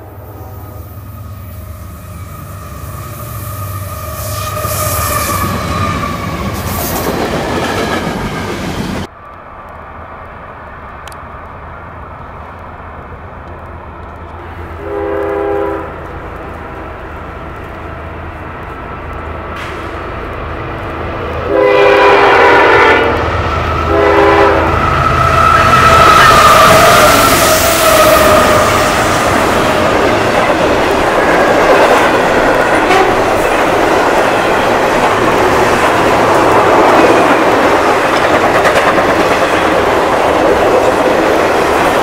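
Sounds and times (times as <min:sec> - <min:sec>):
low rumble of train: 0:00.0 - 0:42.0
multi-tone locomotive horn blasts: 0:01.2 - 0:06.1, 0:14.4 - 0:16.0, 0:21.4 - 0:29.2, 0:32.7 - 0:33.3
train horn: 0:02.2 - 0:06.2, 0:14.8 - 0:16.0, 0:21.4 - 0:29.2, 0:32.7 - 0:33.3.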